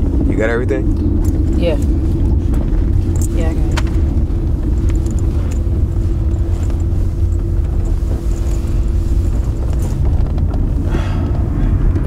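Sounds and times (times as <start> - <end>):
faint steady hum: 0.0 - 12.0
vehicle engine rumble: 0.0 - 12.0.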